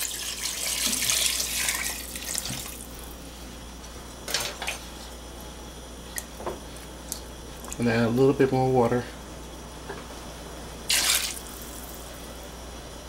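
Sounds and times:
water pouring into a pot: 0.0 - 2.8, 10.9 - 12.0.

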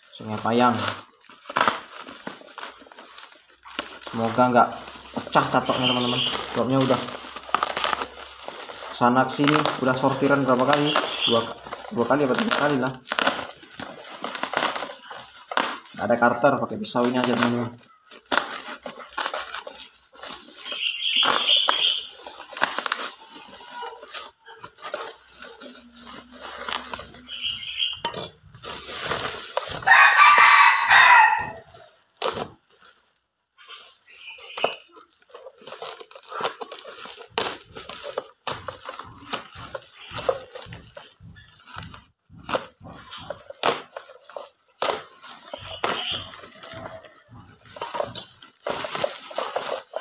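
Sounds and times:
knife cutting parcel: 0.0 - 33.0, 33.6 - 50.0
plastic wrapping crackling: 0.0 - 50.0
rooster crowing: 29.8 - 31.8.

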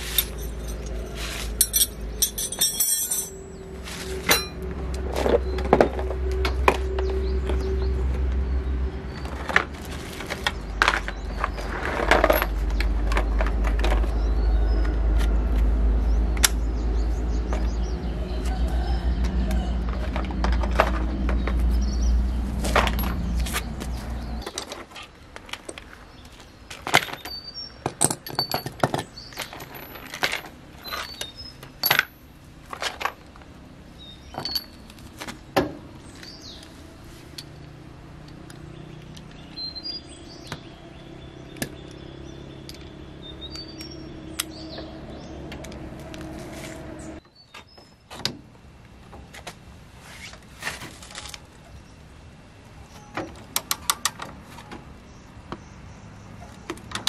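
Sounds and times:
metal tools clinking: 0.0 - 4.7, 11.4 - 13.3, 28.0 - 32.2, 34.2 - 35.0.

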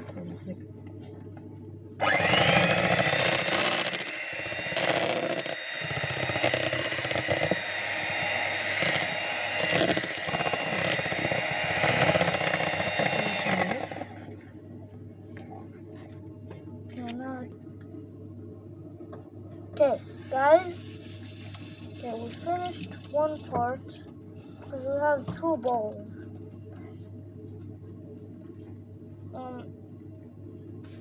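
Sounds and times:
electric hand mixer running: 2.0 - 14.4.

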